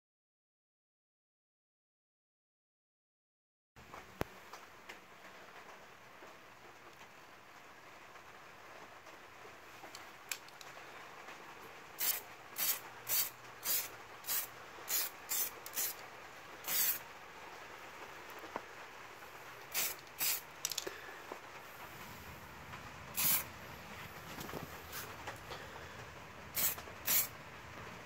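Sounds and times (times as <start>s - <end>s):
aerosol can spraying: 12.0s - 16.0s, 16.6s - 17.0s, 19.7s - 20.5s, 23.2s - 23.5s, 24.9s - 25.2s, 26.6s - 27.3s.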